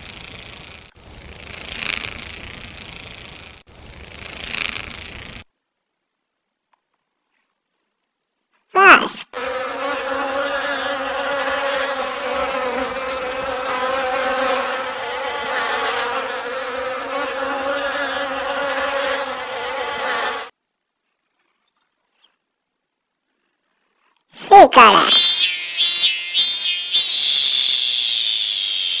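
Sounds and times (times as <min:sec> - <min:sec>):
wasp buzzing in flight: 0:00.0 - 0:05.5, 0:09.3 - 0:20.5, 0:24.9 - 0:29.0
short sweeping pitch sound: 0:25.0 - 0:29.0.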